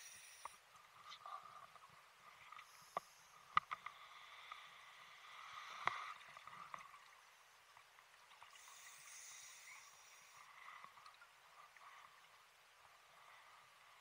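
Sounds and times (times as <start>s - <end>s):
diver regulator breathing hiss: 0.0s - 0.6s, 2.6s - 6.2s, 8.6s - 10.8s.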